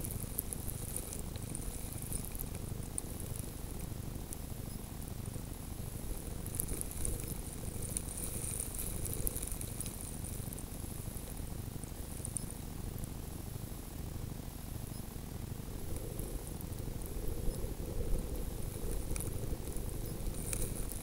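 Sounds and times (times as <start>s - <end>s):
faint high crackling and ticking: 0.0s - 21.0s
wind rumbling over microphone: 5.4s - 12.1s, 15.5s - 21.0s.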